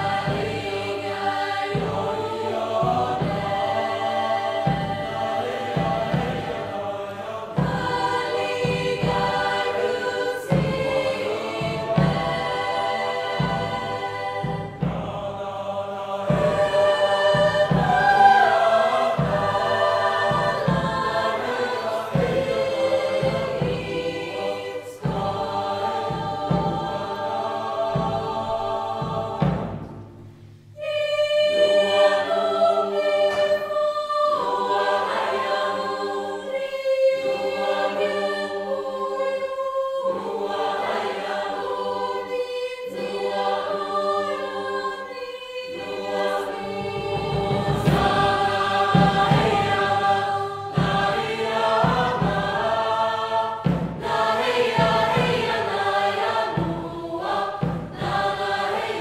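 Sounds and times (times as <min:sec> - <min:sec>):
low drum beats: 0:00.0 - 0:30.3, 0:46.4 - 0:59.0
mixed choir singing: 0:00.0 - 0:59.0.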